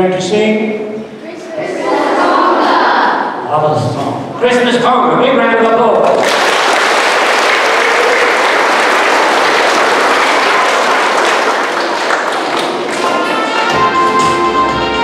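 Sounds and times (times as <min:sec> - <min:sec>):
audience applauding: 0:06.0 - 0:14.2
music: 0:12.9 - 0:15.0.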